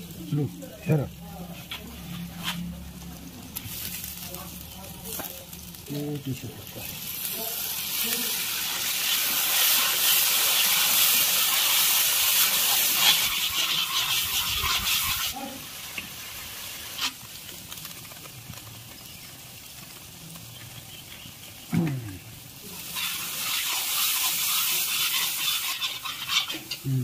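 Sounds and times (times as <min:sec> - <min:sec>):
spices sizzling in hot oil: 0:00.0 - 0:27.0
metal ladle stirring: 0:22.8 - 0:26.8.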